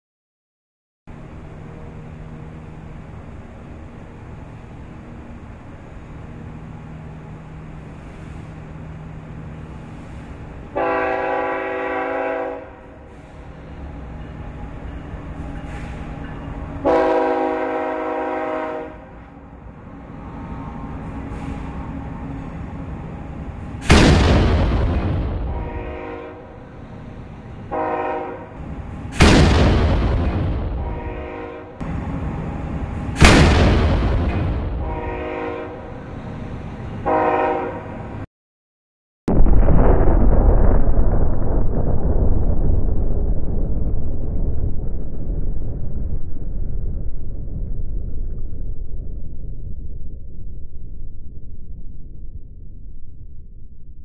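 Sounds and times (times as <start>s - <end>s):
horn blasts: 10.7s - 13.3s, 16.8s - 19.3s, 25.5s - 26.7s, 27.7s - 28.6s, 30.8s - 31.8s, 34.7s - 36.0s, 37.0s - 38.2s
low hum: 19.0s - 27.8s, 28.4s - 36.9s, 39.3s - 54.0s.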